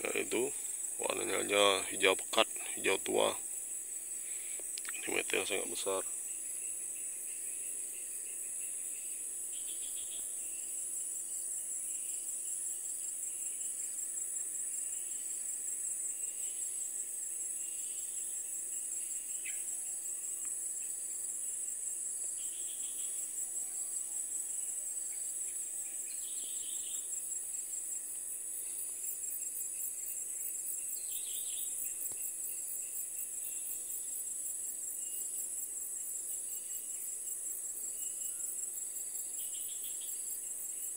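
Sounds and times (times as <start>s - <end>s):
insects shrilling: 0.0s - 6.4s.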